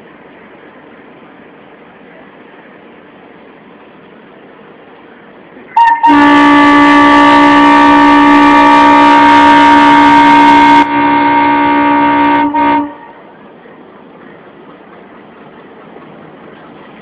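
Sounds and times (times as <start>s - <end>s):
train horn blast: 5.7s - 13.3s.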